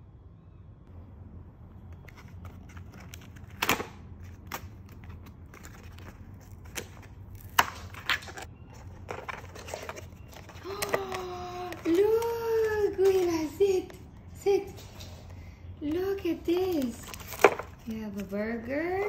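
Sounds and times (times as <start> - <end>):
steady low hum: 0.0 - 19.0
cardboard box rustling: 4.2 - 13.3.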